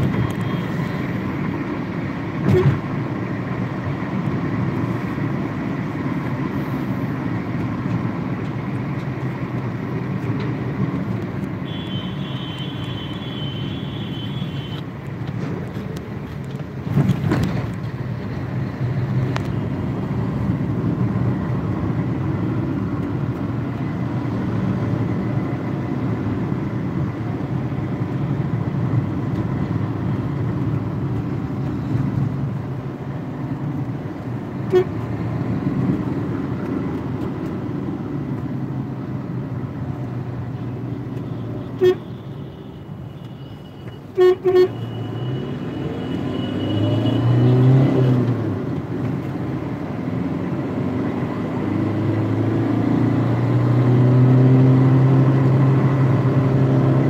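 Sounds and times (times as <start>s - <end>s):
car engine and tyre rumble: 0.0s - 57.0s
high-pitched vehicle horn: 11.7s - 14.8s, 41.7s - 42.8s, 43.4s - 47.4s.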